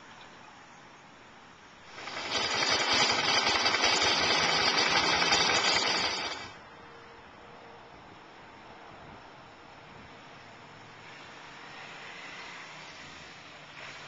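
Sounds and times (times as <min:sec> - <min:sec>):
motorcycle engine running: 0:01.9 - 0:06.6.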